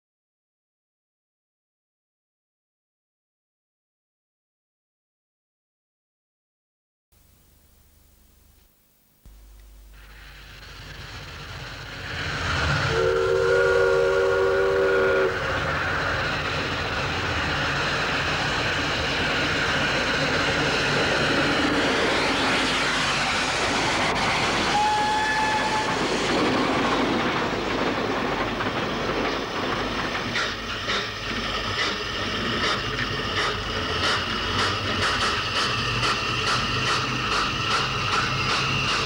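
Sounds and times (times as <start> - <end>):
train running: 9.9 - 39.0
short high train toot: 12.8 - 15.6, 24.6 - 26.1
train horn blast: 12.8 - 15.6, 24.6 - 26.0.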